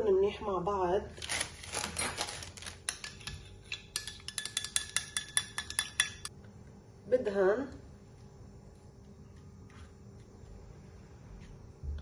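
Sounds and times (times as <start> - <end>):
soft stirring: 2.6 - 6.8, 7.7 - 12.0
whisk clinking against glass bowl: 2.9 - 6.3.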